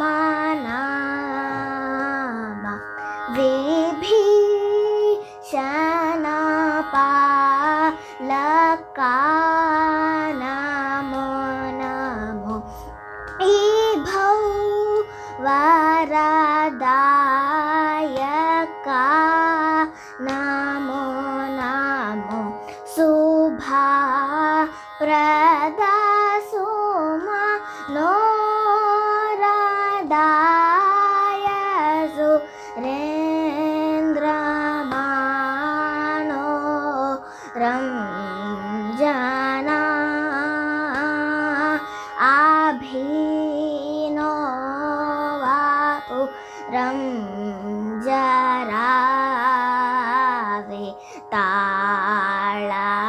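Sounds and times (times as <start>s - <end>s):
girl singing: 0.0s - 53.0s
steady drone: 2.7s - 23.0s.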